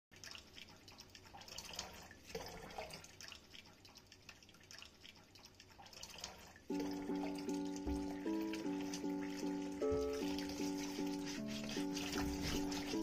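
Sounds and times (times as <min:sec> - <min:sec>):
water dripping: 0:00.1 - 0:13.0
music: 0:06.7 - 0:13.0.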